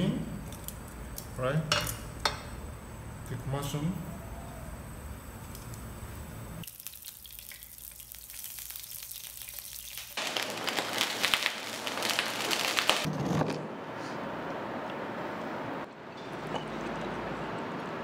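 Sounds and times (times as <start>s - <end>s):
mushrooms sizzling in oil: 6.6s - 13.1s.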